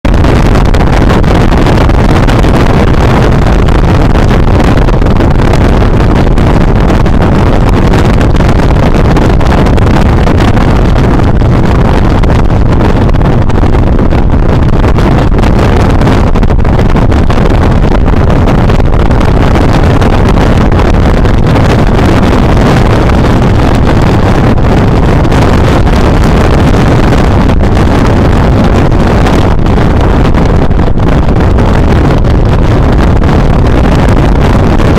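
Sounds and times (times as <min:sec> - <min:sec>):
wind blasting over microphone: 0:00.0 - 0:34.9.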